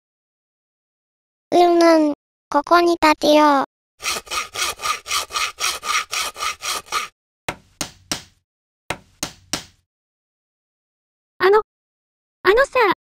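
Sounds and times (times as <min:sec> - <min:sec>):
handsaw sawing: 0:04.0 - 0:08.4
sharp knocks on wood: 0:07.5 - 0:09.8.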